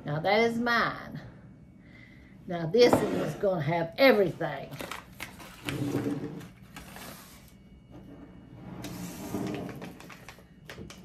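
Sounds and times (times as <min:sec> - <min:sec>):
paper packets rustling: 0:04.6 - 0:05.8, 0:06.4 - 0:07.6.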